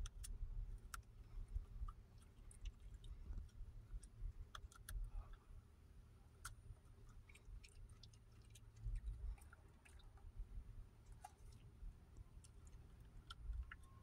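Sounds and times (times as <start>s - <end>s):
dog crunching broccoli: 6.4s - 10.3s.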